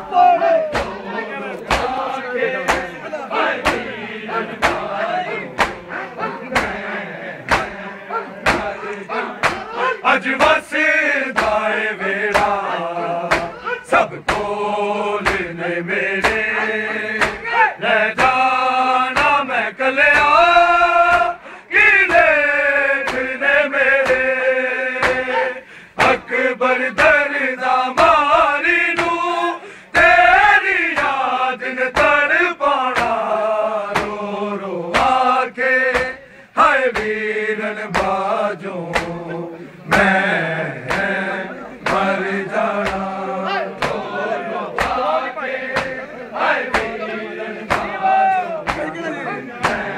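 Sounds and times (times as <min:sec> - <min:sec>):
men chanting in unison: 0:00.0 - 0:49.9
chest-beating slaps: 0:00.7 - 0:03.0, 0:03.6 - 0:07.8, 0:08.4 - 0:09.8, 0:11.4 - 0:11.7, 0:12.3 - 0:12.6, 0:13.3 - 0:14.6, 0:15.2 - 0:15.6, 0:16.2 - 0:17.6, 0:18.2 - 0:18.5, 0:19.2 - 0:19.4, 0:20.1 - 0:20.4, 0:23.0 - 0:23.4, 0:24.0 - 0:24.3, 0:25.0 - 0:26.3, 0:29.0 - 0:29.3, 0:30.9 - 0:31.2, 0:32.0 - 0:32.2, 0:32.9 - 0:33.2, 0:33.9 - 0:34.2, 0:34.9 - 0:35.3, 0:35.9 - 0:36.2, 0:36.9 - 0:37.2, 0:37.9 - 0:38.3, 0:38.9 - 0:41.2, 0:41.8 - 0:46.1, 0:46.7 - 0:47.0, 0:47.7 - 0:48.0, 0:48.6 - 0:49.0, 0:49.6 - 0:49.9.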